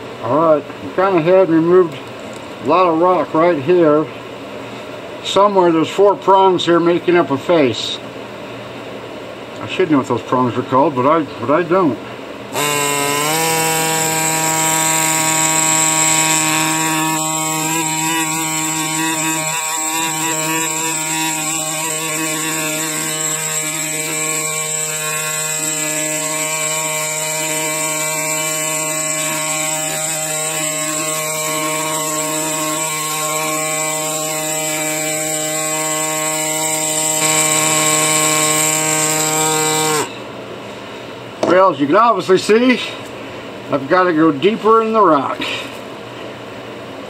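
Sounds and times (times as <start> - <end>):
pneumatic air scribe buzzing: 12.5 - 40.2.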